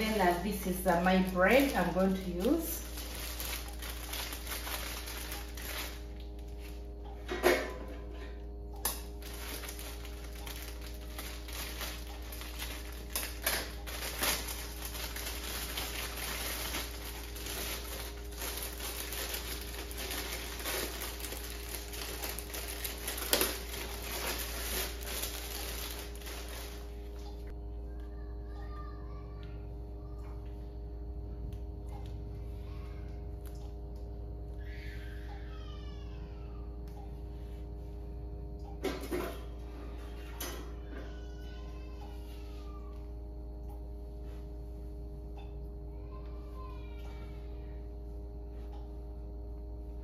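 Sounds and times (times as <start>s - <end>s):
bread packaging rustling: 0.0s - 7.0s, 8.9s - 27.5s
steady background hum: 0.0s - 50.0s.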